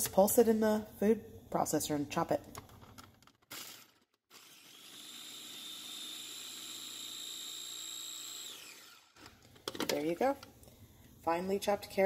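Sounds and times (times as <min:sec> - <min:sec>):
food chopper motor whining: 0:03.4 - 0:09.5.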